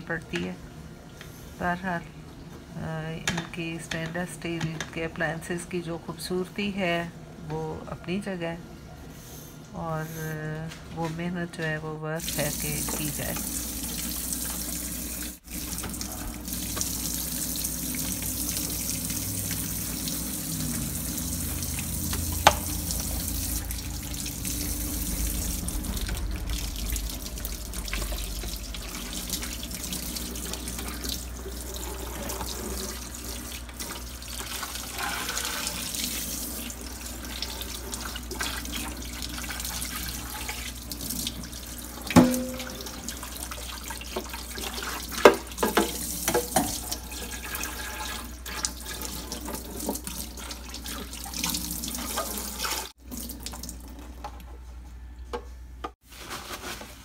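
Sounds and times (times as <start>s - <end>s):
faucet running into metal sink: 12.2s - 54.1s.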